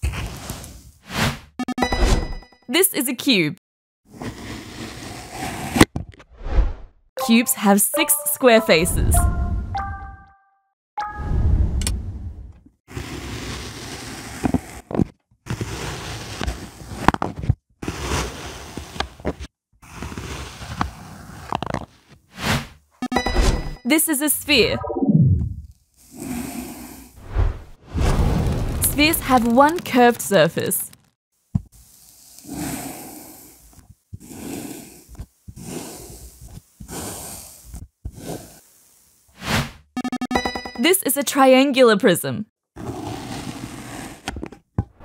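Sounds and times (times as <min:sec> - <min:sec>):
kinetic sand crunching and squishing: 0:27.2 - 0:30.8.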